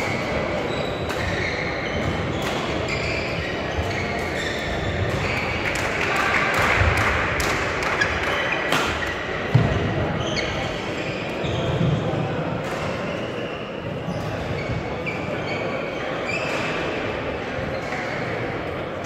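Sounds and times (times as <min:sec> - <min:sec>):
murmur of voices echoing: 0:00.0 - 0:19.0
shoes squeaking on court floor: 0:00.1 - 0:05.7, 0:07.9 - 0:12.2, 0:12.8 - 0:17.0
rackets striking shuttlecocks: 0:00.1 - 0:09.8.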